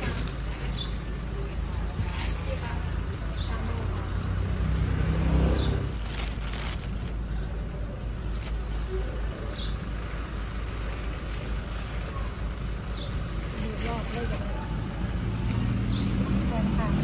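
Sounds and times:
plastic bags crinkling: 0.0 - 3.3, 5.8 - 8.8, 9.8 - 17.0
low traffic hum: 0.0 - 17.0
vehicle engine rumble passing: 0.0 - 17.0.

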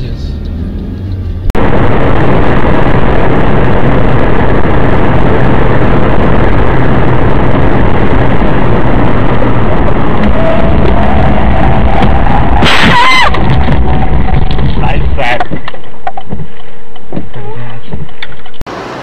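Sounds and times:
car engine: 0.0 - 17.3
tyre and road rumble: 0.0 - 18.7
wind noise: 1.5 - 18.6.

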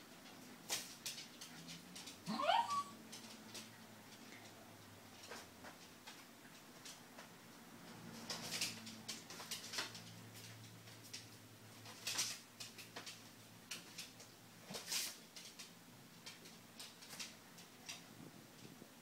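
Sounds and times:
paper rustling and crinkling: 8.1 - 18.1.

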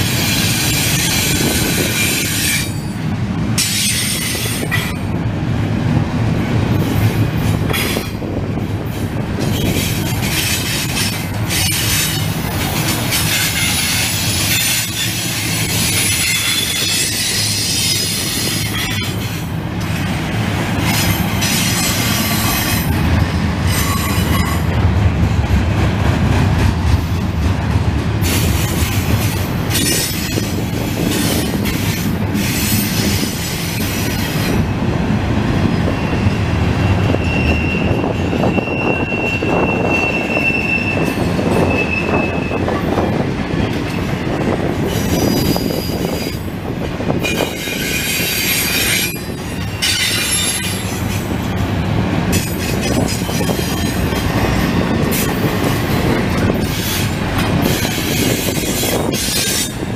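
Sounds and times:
train wheels rumbling on rails: 0.0 - 59.9
high wheel squeal: 9.4 - 19.4, 23.7 - 24.7, 35.7 - 43.0, 44.8 - 46.5, 47.2 - 51.3.

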